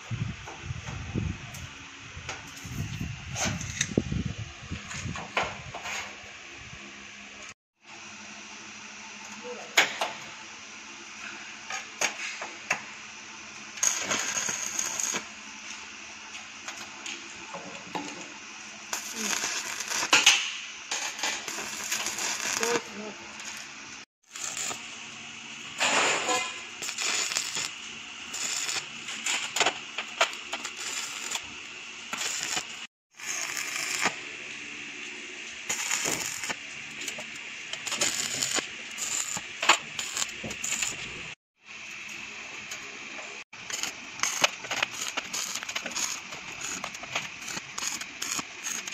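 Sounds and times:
crackling welding arc: 1.5 - 4.0, 13.5 - 48.9.

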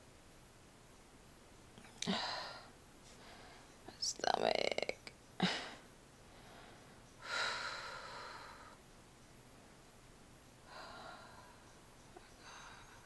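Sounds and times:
person breathing heavily: 5.4 - 8.8, 10.7 - 13.0.

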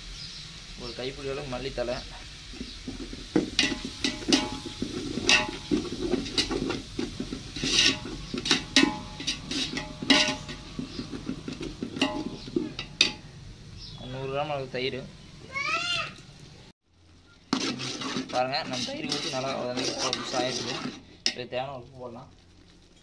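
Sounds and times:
ladle scraping metal pot: 2.4 - 13.3, 17.3 - 21.7
ladle clinking against pot: 3.4 - 13.3.

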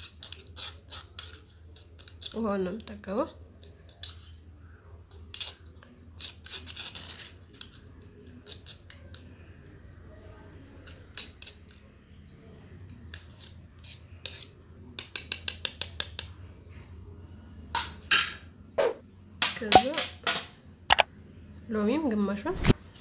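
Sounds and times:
toothbrush scraping: 0.0 - 2.4, 3.6 - 4.4, 5.1 - 9.3, 12.9 - 14.6.

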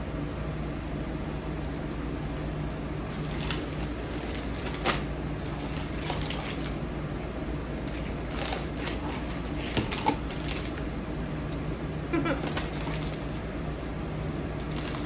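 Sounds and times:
snack wrappers crinkling: 3.1 - 6.8, 7.6 - 10.9, 11.5 - 13.4, 14.6 - 15.0.

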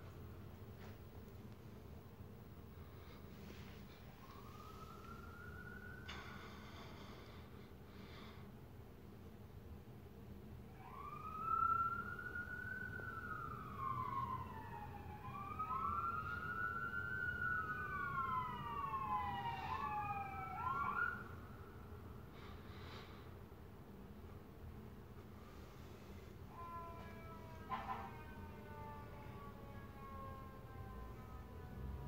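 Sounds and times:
overlapping wailing tones: 26.5 - 32.0.

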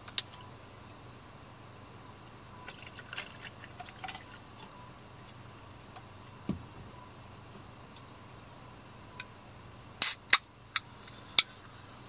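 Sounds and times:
liquid trickling into a cup: 2.6 - 4.7.

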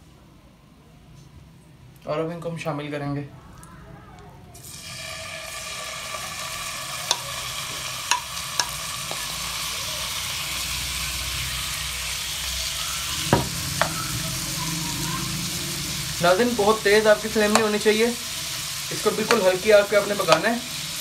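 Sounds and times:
meat sizzling in a frying pan: 4.6 - 21.0
utensils clicking against pan: 7.0 - 7.4, 8.0 - 9.4, 17.4 - 17.8, 19.0 - 20.6.

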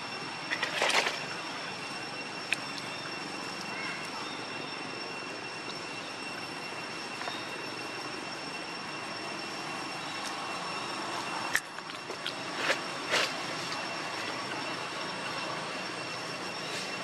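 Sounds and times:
faint high whine: 0.0 - 17.0
outdoor background noise: 0.0 - 17.0.

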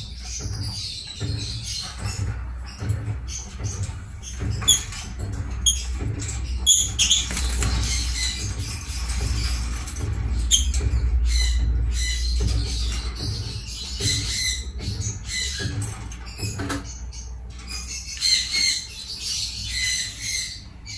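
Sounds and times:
lovebirds chirping and squawking: 0.0 - 20.9
low rumble: 4.2 - 16.1.

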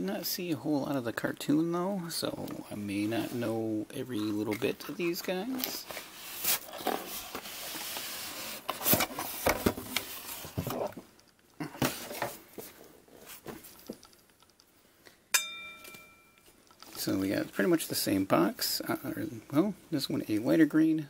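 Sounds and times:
cardboard scraping and rustling: 4.9 - 11.1.

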